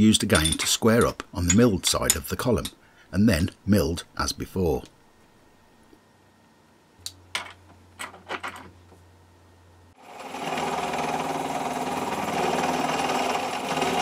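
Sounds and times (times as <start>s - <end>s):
milling machine cutting metal: 10.1s - 14.0s.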